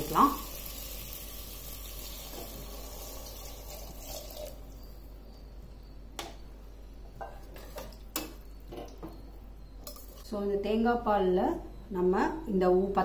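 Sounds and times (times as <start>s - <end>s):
liquid pouring into a pot: 0.1s - 4.7s.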